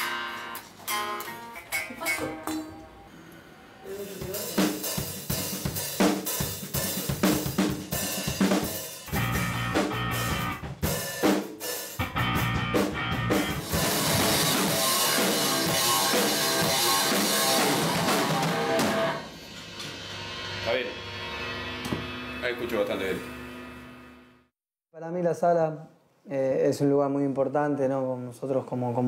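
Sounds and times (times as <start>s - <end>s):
rock band playing: 0.0s - 2.9s, 4.2s - 19.3s
drum kit hits: 4.2s - 19.3s.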